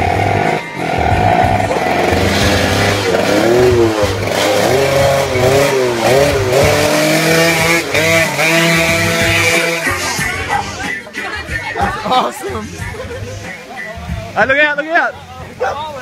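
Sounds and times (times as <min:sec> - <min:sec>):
motorcycle engine revving: 0:00.0 - 0:10.8.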